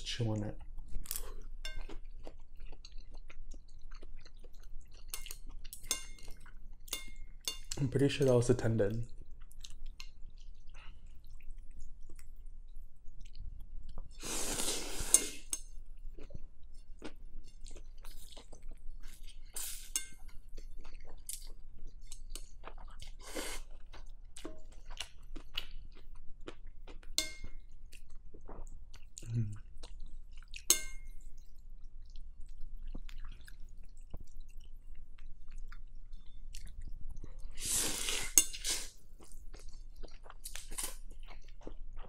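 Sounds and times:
slurping noodles: 14.2 - 15.5, 37.5 - 39.0
wet chewing and lip smacks: 20.5 - 37.4.

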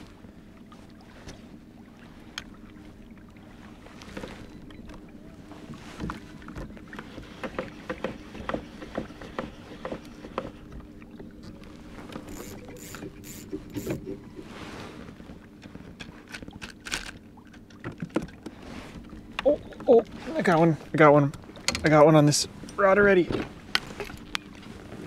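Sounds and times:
steady low hum: 9.5 - 16.3
fishing tackle clicking and knocking: 12.2 - 14.1.

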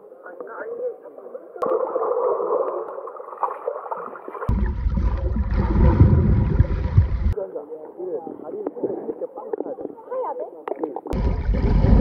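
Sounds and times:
water sloshing and splashing: 1.6 - 7.4, 10.7 - 12.0
deep underwater rumble: 4.5 - 7.4, 11.0 - 12.0.

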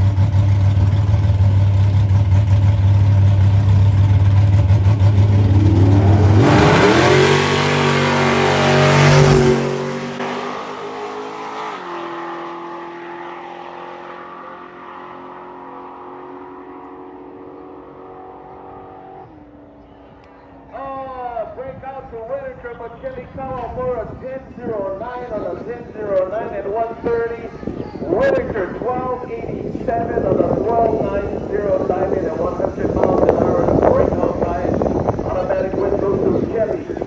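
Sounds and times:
drag racing car engines revving: 0.0 - 20.8, 28.2 - 37.0.

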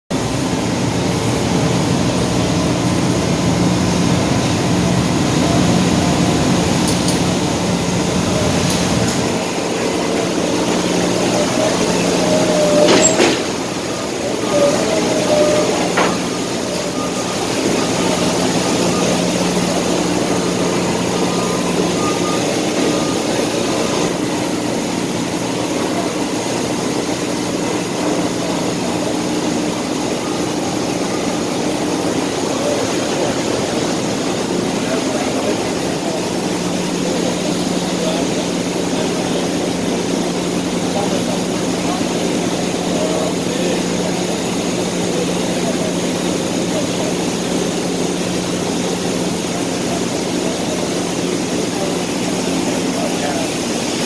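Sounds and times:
heavy engines and machinery humming: 0.2 - 54.0
sharp high squeal: 10.8 - 24.2.

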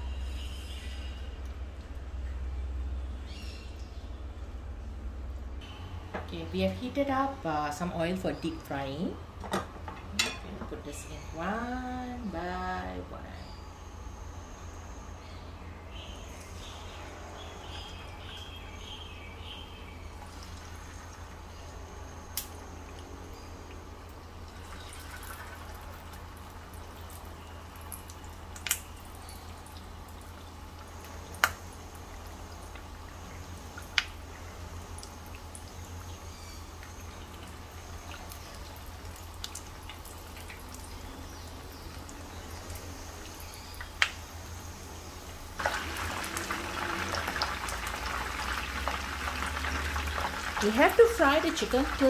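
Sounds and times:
low hum: 0.0 - 52.0
oil bubbling: 16.2 - 52.0
oil popping: 34.8 - 44.2, 45.6 - 52.0
chicken sizzling in pan: 45.6 - 52.0.

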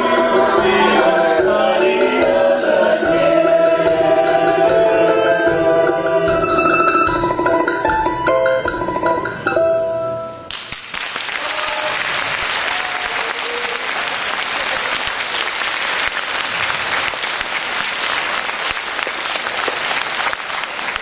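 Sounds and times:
band playing last notes: 0.0 - 10.4
audience applauding: 10.5 - 21.0.

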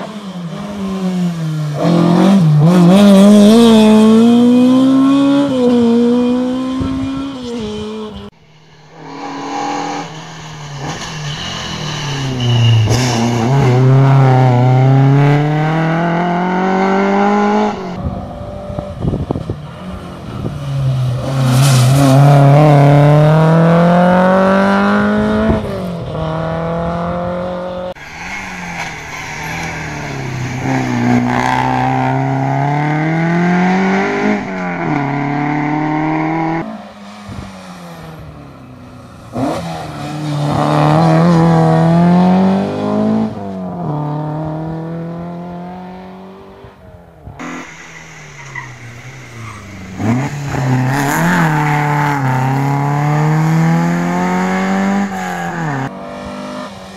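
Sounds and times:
rally car engines accelerating: 9.0 - 56.9.

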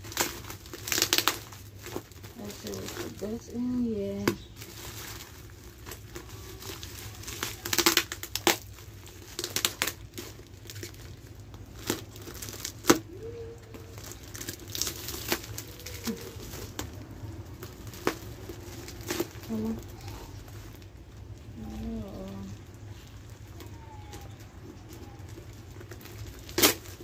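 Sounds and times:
scissors cutting plastic: 0.0 - 4.5, 23.5 - 27.0
plastic bags crinkling and tearing: 0.0 - 27.0.

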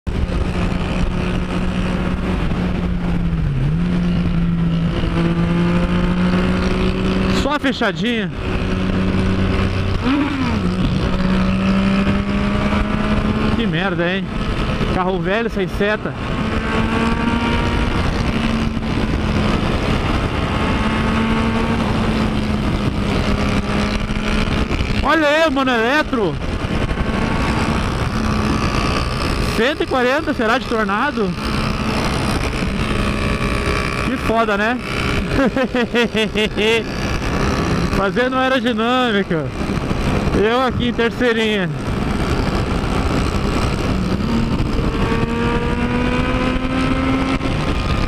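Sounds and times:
motorcycle engine running: 0.0 - 48.0
wind rush: 0.1 - 48.0.

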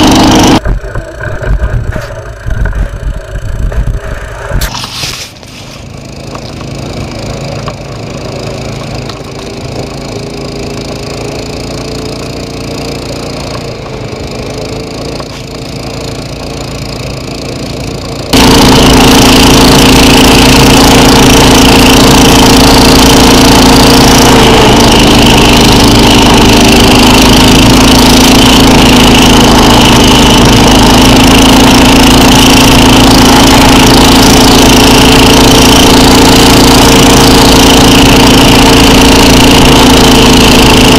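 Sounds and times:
sled scraping through snow: 0.0 - 40.9
snow machine engine running: 0.0 - 40.9.

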